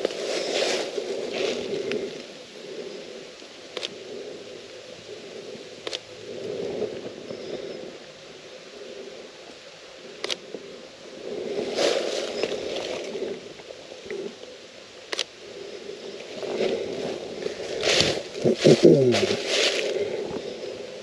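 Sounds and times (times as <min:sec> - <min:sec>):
rustling and handling noise: 0:00.0 - 0:02.4, 0:11.5 - 0:13.6, 0:16.2 - 0:20.8
sharp clicks: 0:03.7 - 0:04.0, 0:05.8 - 0:06.1, 0:10.2 - 0:10.4, 0:15.1 - 0:15.4.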